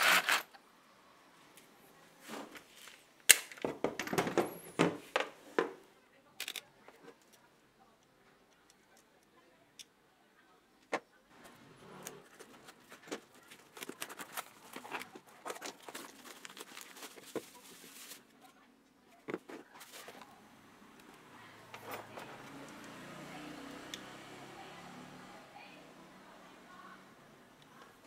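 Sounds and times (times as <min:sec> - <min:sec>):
sharp clicks of handling: 0:06.4 - 0:09.9
packaging crinkling and rustling: 0:12.2 - 0:18.3, 0:19.3 - 0:20.4.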